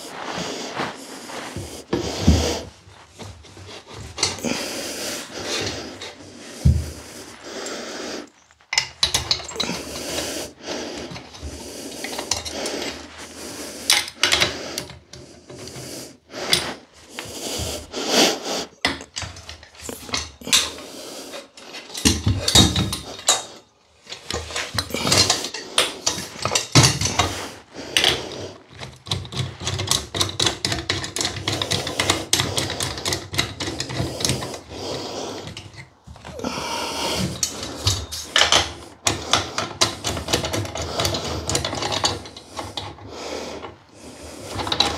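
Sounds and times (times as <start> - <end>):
metal parts scraping: 8.2 - 13.2, 19.0 - 34.7, 37.2 - 44.9.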